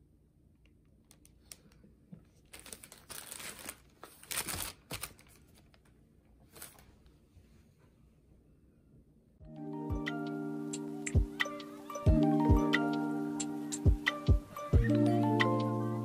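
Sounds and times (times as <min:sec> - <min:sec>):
paper bag crinkling: 0:02.3 - 0:05.9.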